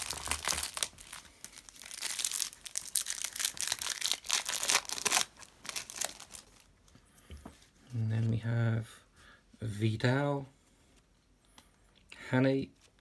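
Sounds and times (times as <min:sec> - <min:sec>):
foil pack tearing and crinkling: 0:00.0 - 0:06.7.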